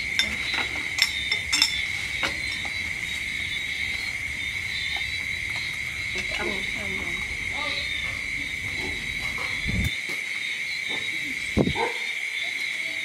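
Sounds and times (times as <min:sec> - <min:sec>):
spoons clinking on plates: 0:00.0 - 0:02.8
insects chirring: 0:00.0 - 0:13.0.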